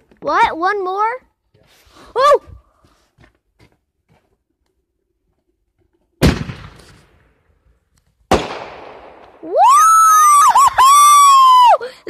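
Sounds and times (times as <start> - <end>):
fireworks bangs: 6.2 - 7.4, 8.3 - 9.6.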